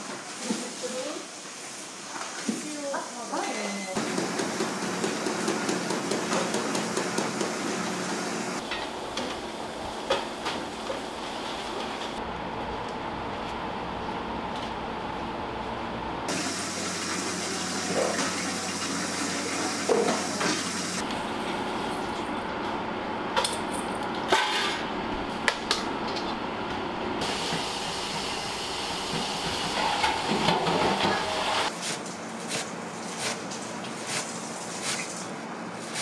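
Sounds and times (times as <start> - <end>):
rushing water or hissing steam: 0.0 - 4.0, 16.3 - 21.0.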